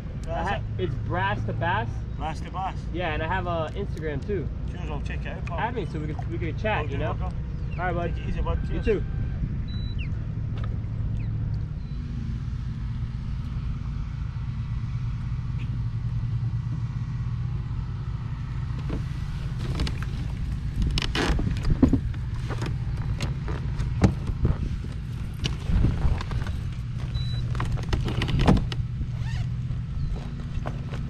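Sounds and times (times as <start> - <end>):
outboard engine rumbling: 0.0 - 31.0
knocks and rustles: 18.7 - 31.0.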